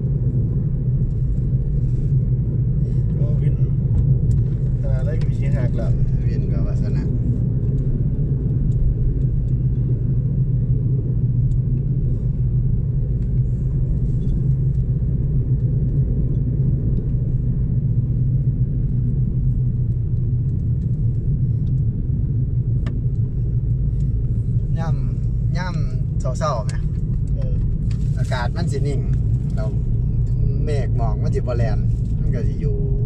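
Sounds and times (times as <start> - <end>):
car engine and road rumble: 0.0 - 33.0.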